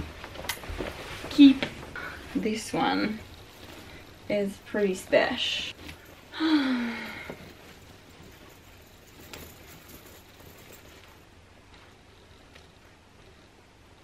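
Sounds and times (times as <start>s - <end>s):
jacket rustling: 0.0s - 11.3s
woman's voice: 1.3s - 3.3s, 4.3s - 5.8s.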